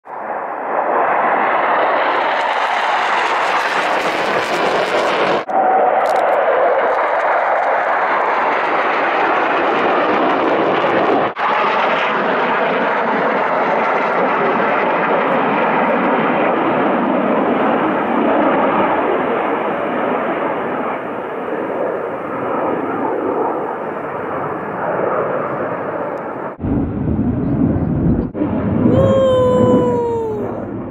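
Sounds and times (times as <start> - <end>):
fighter jet passing: 0.1 - 29.6
deep rumble: 26.6 - 30.9.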